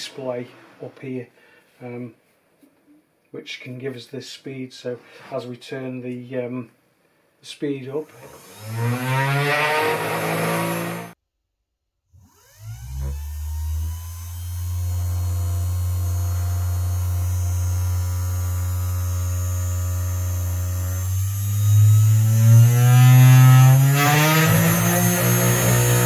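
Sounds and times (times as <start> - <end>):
spindle motor whine: 12.3 - 21.9.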